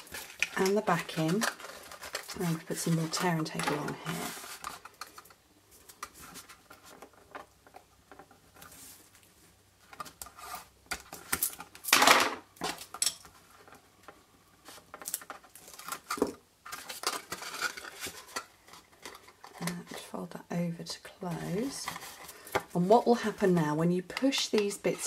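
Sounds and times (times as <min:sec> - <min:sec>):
tape and card tapping and rustling: 0:09.9 - 0:12.0, 0:14.6 - 0:20.0.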